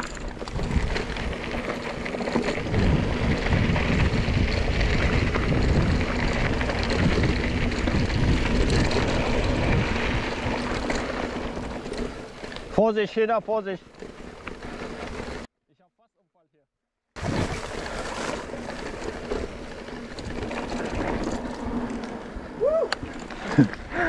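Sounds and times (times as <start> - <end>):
wind buffeting microphone: 0.0 - 11.9
bike knocks and rattles: 0.0 - 12.8.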